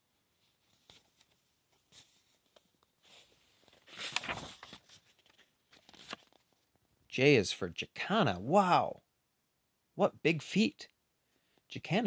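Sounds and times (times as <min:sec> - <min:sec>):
paper page turning: 0:00.6 - 0:06.7.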